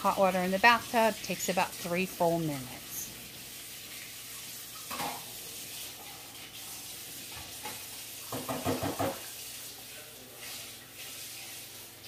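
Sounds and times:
faucet running into sink: 0:00.0 - 0:12.0.

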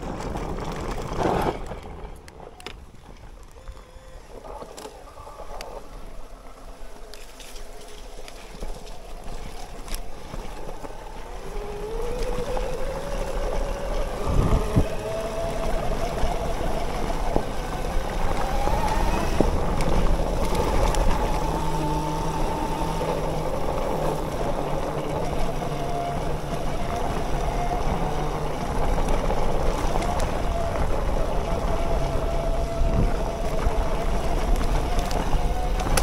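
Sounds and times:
electric bike motor whining: 0:00.0 - 0:36.0
wind noise: 0:00.0 - 0:36.0.

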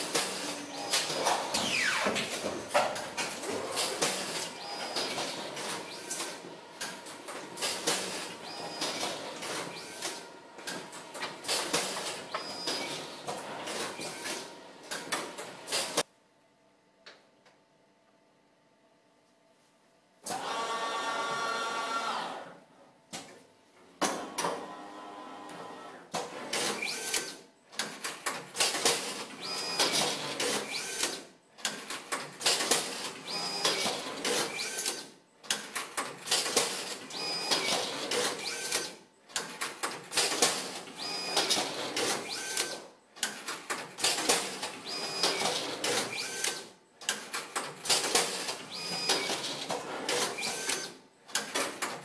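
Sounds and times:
machine short whines: 0:00.4 - 0:02.3, 0:12.3 - 0:13.2, 0:37.1 - 0:38.9, 0:44.9 - 0:46.7, 0:48.7 - 0:49.5.

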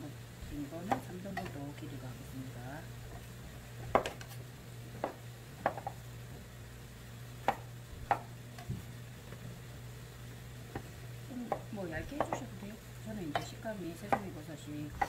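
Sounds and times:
steady low hum: 0:00.0 - 0:15.0
knife knocking on cutting board: 0:05.0 - 0:05.9, 0:11.5 - 0:12.5.

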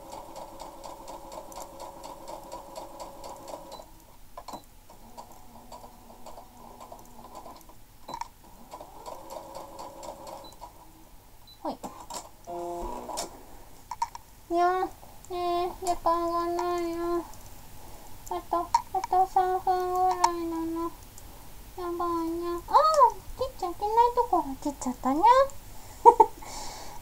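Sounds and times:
sewing machine stitching: 0:00.0 - 0:03.9, 0:04.5 - 0:10.9, 0:11.9 - 0:13.6
clicks: 0:14.9 - 0:17.6, 0:18.2 - 0:21.3.

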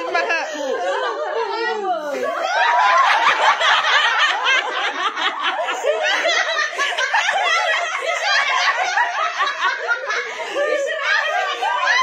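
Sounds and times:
chatter: 0:00.0 - 0:12.0
women and children laughing: 0:00.0 - 0:12.0.

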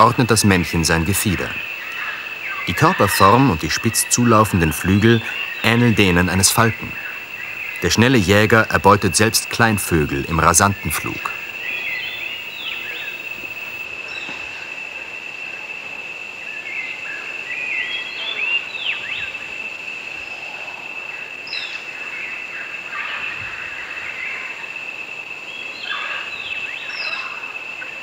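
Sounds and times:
chirping bird calls: 0:00.0 - 0:14.3
high insect drone: 0:00.0 - 0:28.0.

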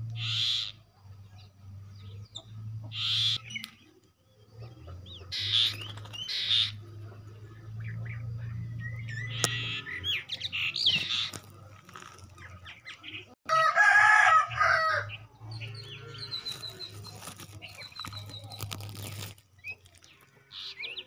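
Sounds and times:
small birds chirping and whistling: 0:00.0 - 0:13.4, 0:15.1 - 0:21.0.

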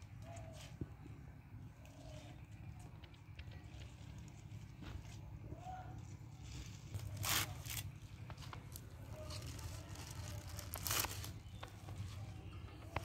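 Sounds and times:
leaves tearing and rustling: 0:06.0 - 0:11.7
spinach stems snapping: 0:06.9 - 0:11.8.

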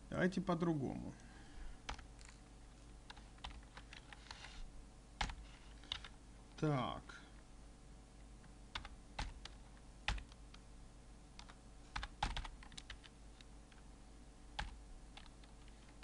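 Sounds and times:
faint low hum: 0:00.0 - 0:16.0
computer keyboard typing: 0:01.8 - 0:02.4, 0:03.1 - 0:04.5, 0:05.2 - 0:06.2, 0:08.7 - 0:10.4, 0:11.4 - 0:13.8, 0:14.6 - 0:16.0.

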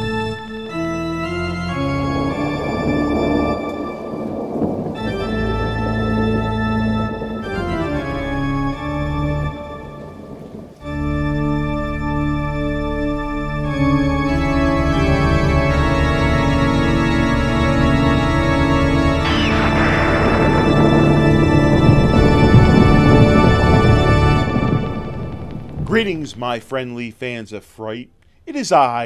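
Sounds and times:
organ playing sustained chords: 0:00.0 - 0:26.8.

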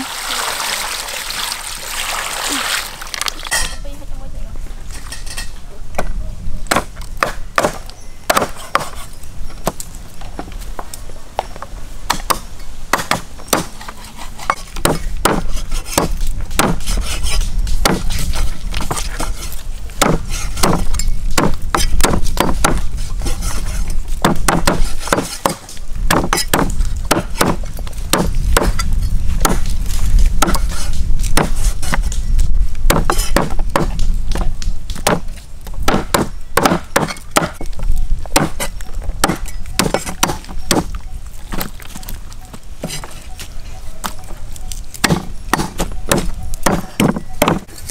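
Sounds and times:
cleaver chopping chicken on wood: 0:06.7 - 0:09.0, 0:24.2 - 0:28.8, 0:32.9 - 0:34.0, 0:35.0 - 0:35.3, 0:35.9 - 0:37.6, 0:38.3 - 0:40.9, 0:45.0 - 0:47.7.

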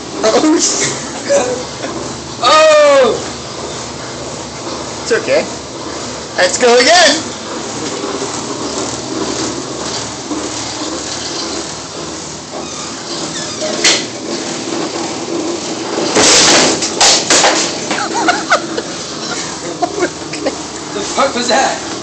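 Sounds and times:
puck machine whirring: 0:00.0 - 0:22.0
loud clattering burst: 0:07.6 - 0:19.3.

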